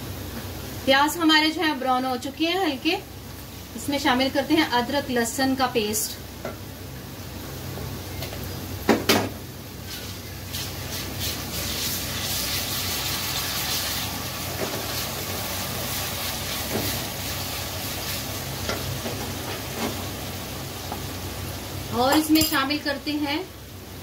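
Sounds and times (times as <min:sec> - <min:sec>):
onions sizzling in oil: 0:00.0 - 0:24.0
wooden spatula stirring in pan: 0:09.8 - 0:20.2.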